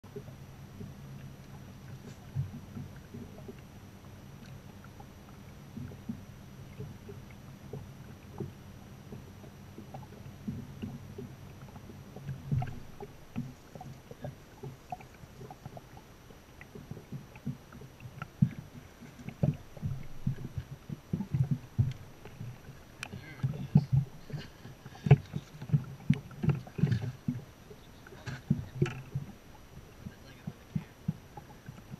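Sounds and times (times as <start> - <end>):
steady low hum: 0.0 - 31.9
knocks and thumps on boat deck: 5.8 - 15.8, 16.7 - 29.4.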